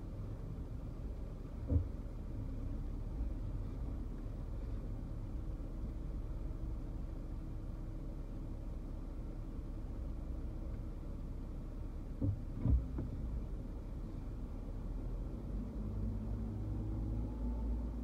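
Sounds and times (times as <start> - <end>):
car engine and tyres rumbling: 0.0 - 18.0
short thump: 1.6 - 2.0, 12.2 - 13.2.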